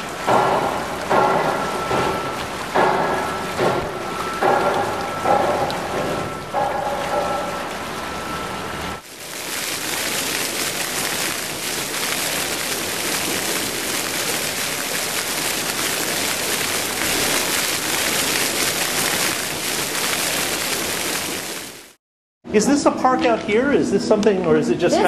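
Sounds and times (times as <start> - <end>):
hiss of splashing water: 9.0 - 22.0.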